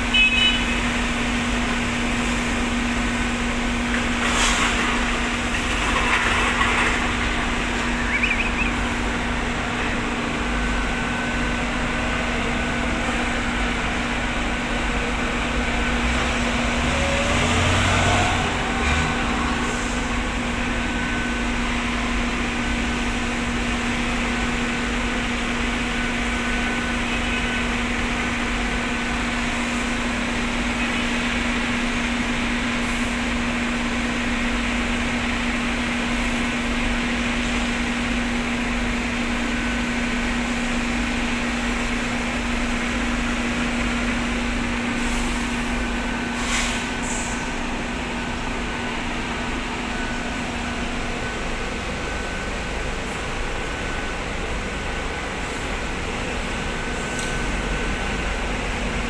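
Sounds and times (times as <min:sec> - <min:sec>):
heavy vehicle engines running: 0:00.0 - 0:59.0
machinery hum: 0:00.0 - 0:59.0
engine revving: 0:15.9 - 0:20.1.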